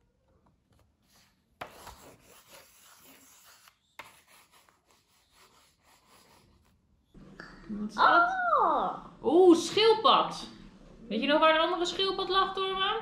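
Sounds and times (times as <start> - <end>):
pencil scratching on paper: 1.1 - 6.8.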